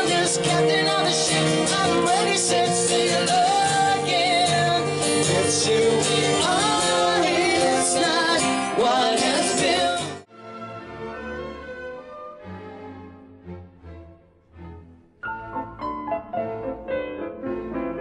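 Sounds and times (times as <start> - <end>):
woman singing: 0.0 - 10.2
acoustic guitars: 0.0 - 10.3.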